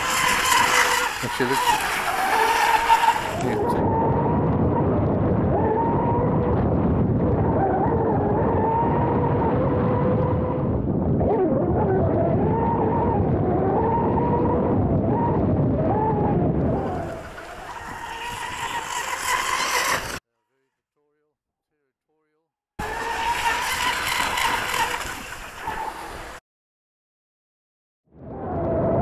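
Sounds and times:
electric boat motor whining: 0.0s - 4.4s, 12.1s - 20.2s, 22.8s - 26.4s
water rushing against hull: 0.0s - 4.7s, 22.8s - 26.4s.

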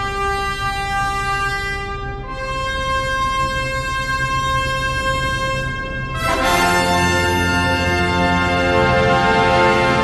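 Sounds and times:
orchestral held notes: 2.3s - 10.0s.

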